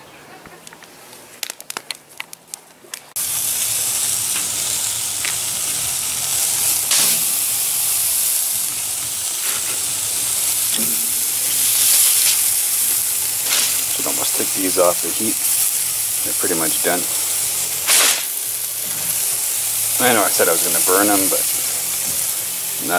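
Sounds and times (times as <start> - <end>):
steaks sizzling on a grill: 3.2 - 22.9.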